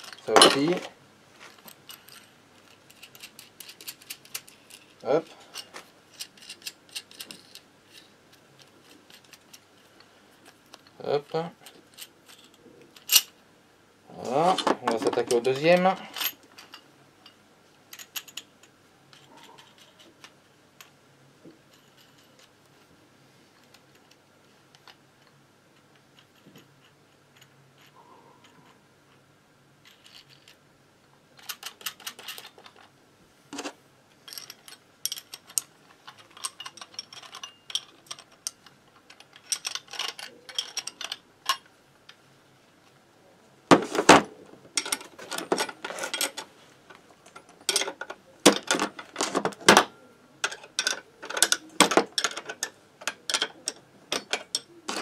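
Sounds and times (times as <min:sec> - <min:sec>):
metal tools clinking and rattling: 0:00.0 - 0:09.6, 0:14.2 - 0:18.5, 0:19.1 - 0:20.9, 0:31.4 - 0:32.9, 0:33.6 - 0:41.7, 0:43.7 - 0:55.0.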